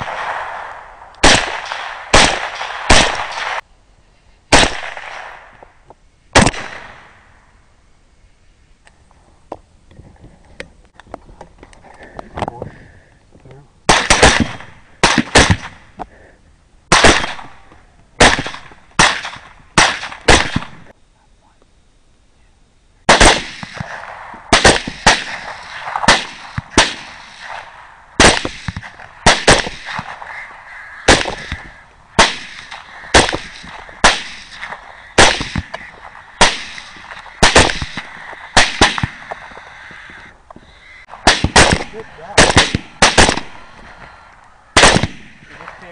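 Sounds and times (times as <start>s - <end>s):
rifle shots cracking: 0.0s - 3.6s, 4.5s - 5.6s, 6.3s - 7.2s, 13.9s - 15.9s, 16.9s - 20.9s, 23.1s - 40.1s, 41.1s - 44.0s, 44.7s - 45.9s.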